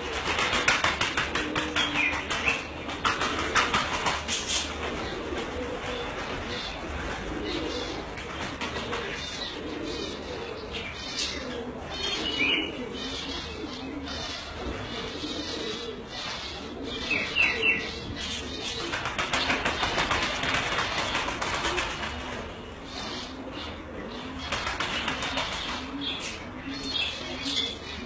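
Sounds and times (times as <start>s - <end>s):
pigeons cooing: 0.0s - 28.0s.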